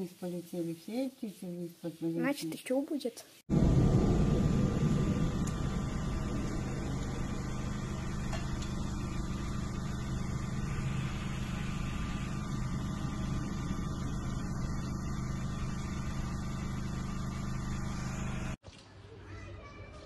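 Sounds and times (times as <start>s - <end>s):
steady low tonal hum: 3.5s - 18.6s.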